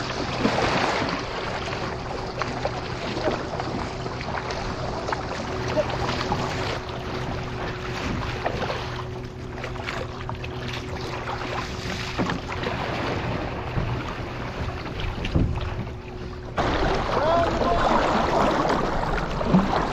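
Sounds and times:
paddle strokes splashing water: 0:00.0 - 0:19.9
steady low hum: 0:00.0 - 0:19.9
water rushing along hull: 0:00.0 - 0:19.9.

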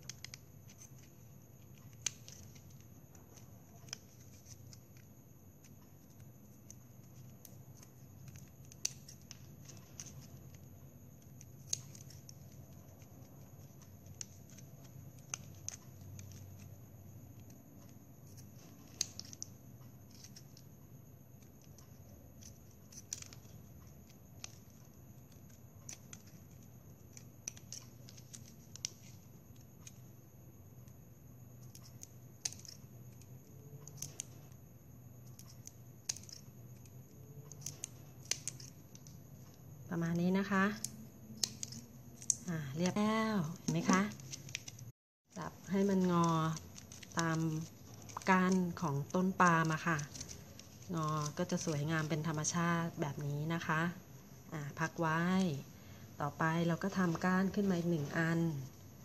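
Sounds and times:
scissors snipping plastic: 0:00.0 - 0:16.7, 0:17.3 - 0:20.7, 0:21.3 - 0:30.0, 0:31.6 - 0:34.5, 0:35.2 - 0:39.2, 0:40.7 - 0:44.9, 0:45.6 - 0:52.4.

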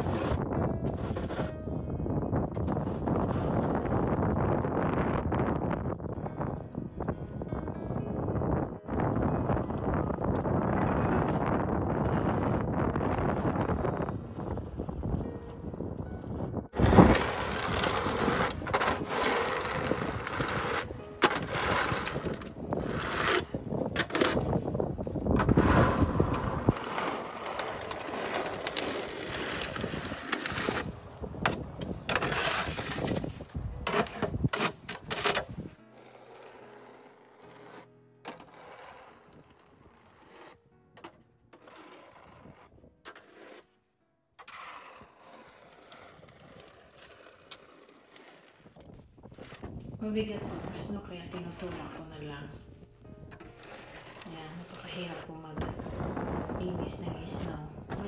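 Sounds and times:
snow shovel scraping snow: 0:00.0 - 0:01.6, 0:11.0 - 0:12.8, 0:16.8 - 0:24.7, 0:25.4 - 0:30.9, 0:31.5 - 0:43.7, 0:44.4 - 0:48.8, 0:50.3 - 0:52.1, 0:53.6 - 0:55.2
wind buffeting microphone: 0:00.0 - 0:35.8, 0:48.6 - 0:58.0.

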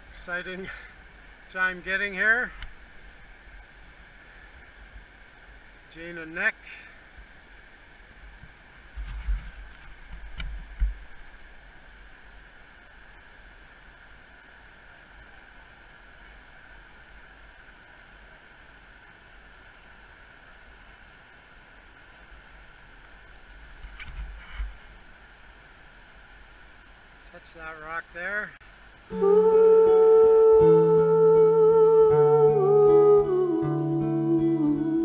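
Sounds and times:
fast river rushing: 0:28.7 - 0:35.0.

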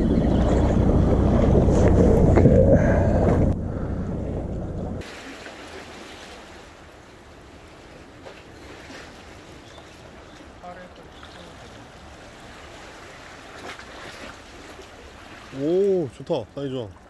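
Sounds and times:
wind buffeting microphone: 0:00.0 - 0:05.0
sea waves on rocks: 0:05.0 - 0:16.2.

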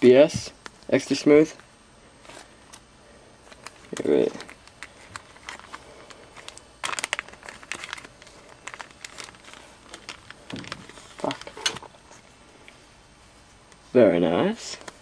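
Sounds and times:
plastic packet crinkling: 0:03.4 - 0:12.2.

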